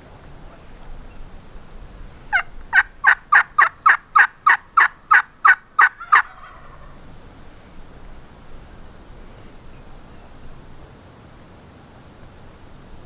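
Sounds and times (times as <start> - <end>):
turkey yelping: 2.3 - 7.0.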